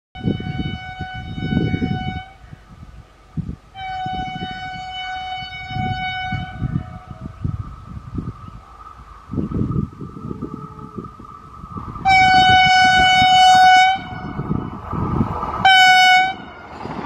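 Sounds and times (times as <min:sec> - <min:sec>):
train horn blasts: 0:00.2 - 0:02.4, 0:03.7 - 0:07.2, 0:12.0 - 0:14.6, 0:15.6 - 0:16.7
train rumble: 0:00.2 - 0:17.0.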